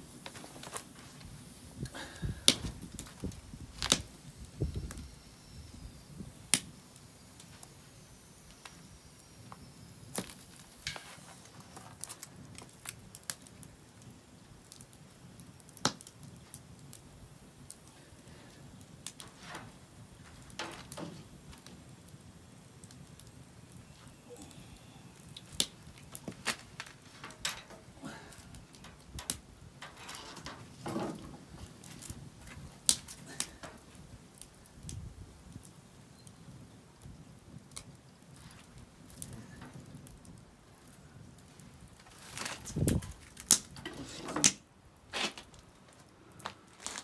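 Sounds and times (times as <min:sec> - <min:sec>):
wood fire crackling: 0:00.0 - 0:47.0.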